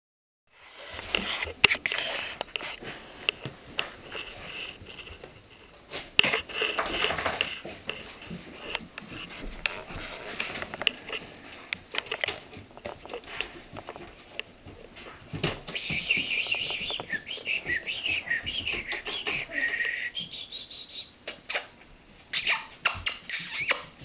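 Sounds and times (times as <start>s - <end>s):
puppies sniffing and snuffling: 0.6s - 20.4s
rustling: 0.6s - 20.8s.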